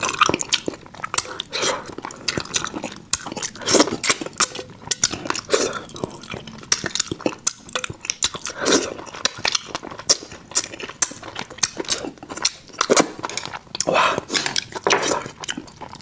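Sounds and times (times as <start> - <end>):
person chewing food: 0.0 - 16.0.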